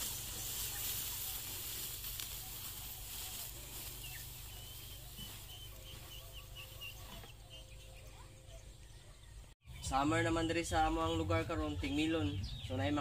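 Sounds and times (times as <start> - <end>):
footsteps rustling through dry stubble: 0.0 - 7.8
faint bird chirps: 0.0 - 13.0.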